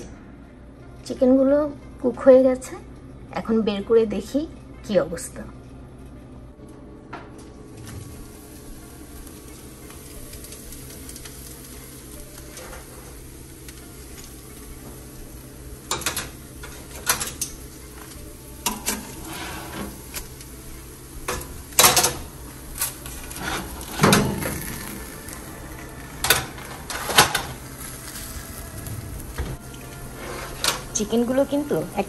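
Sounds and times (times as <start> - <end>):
metal clanks of oven rack: 15.9 - 17.6, 18.6 - 20.3, 21.3 - 22.3, 23.1 - 24.9, 30.2 - 31.0.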